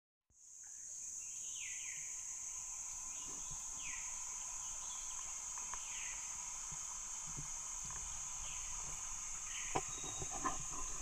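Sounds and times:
high-pitched insect drone: 0.4 - 11.0.

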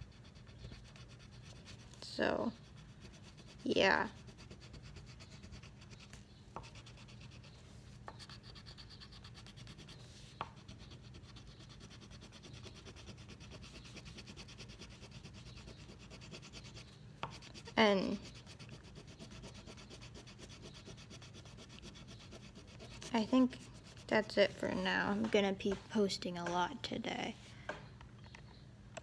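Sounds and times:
crayon rubbing on paper: 0.0 - 24.6.

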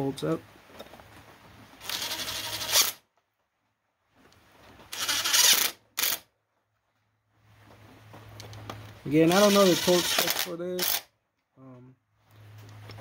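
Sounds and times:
impact driver bursts: 5.0 - 6.2, 9.3 - 11.1.

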